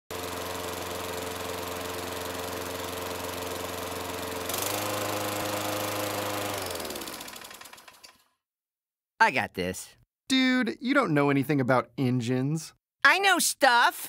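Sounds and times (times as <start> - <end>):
riding lawn mower engine: 0.1 - 8.2.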